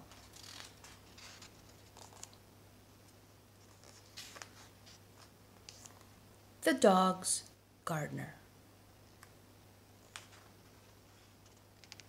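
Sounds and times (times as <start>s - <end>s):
book pages turning: 0.0s - 2.4s, 3.6s - 6.1s, 10.0s - 12.0s.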